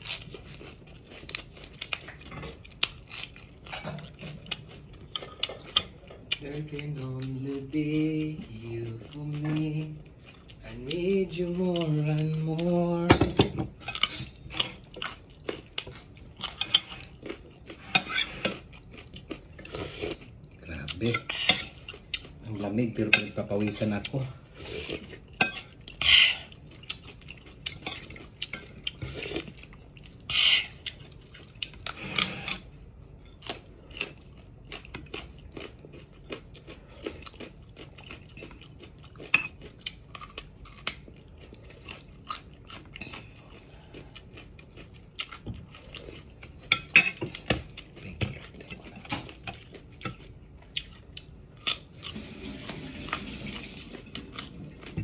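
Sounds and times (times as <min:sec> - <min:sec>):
crunching raw vegetables: 0:00.0 - 0:13.0.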